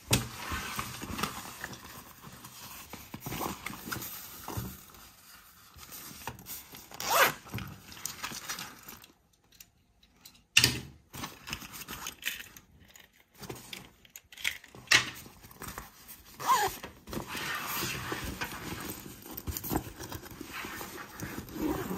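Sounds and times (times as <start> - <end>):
zipper opening and closing: 6.9 - 7.5, 16.4 - 19.0, 20.5 - 21.9
nylon fabric rustling: 7.0 - 7.4, 15.6 - 21.9.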